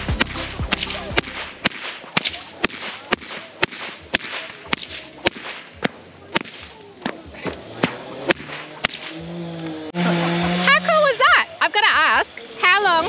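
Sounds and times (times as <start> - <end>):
whip cracking: 0.0 - 9.3.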